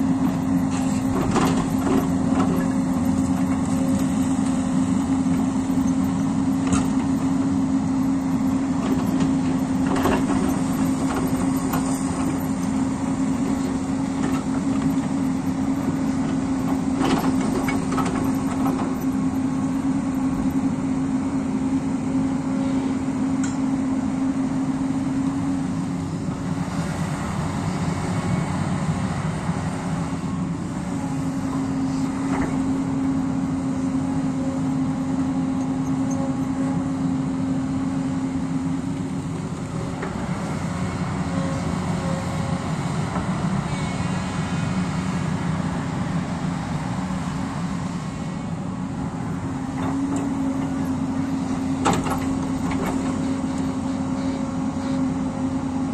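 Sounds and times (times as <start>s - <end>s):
excavator diesel engine: 0.0s - 55.9s.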